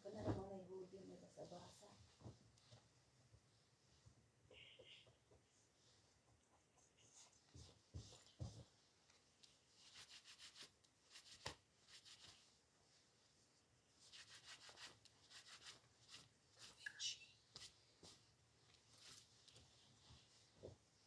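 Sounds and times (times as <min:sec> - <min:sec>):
clothes rustling: 0:07.1 - 0:16.8, 0:17.5 - 0:21.0.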